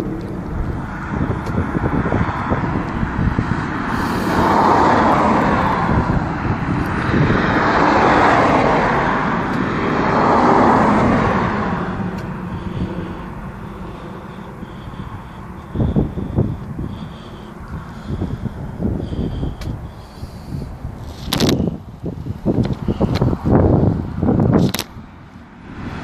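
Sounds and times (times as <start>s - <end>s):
cars passing: 0.0s - 26.0s
steady low traffic rumble: 0.0s - 26.0s.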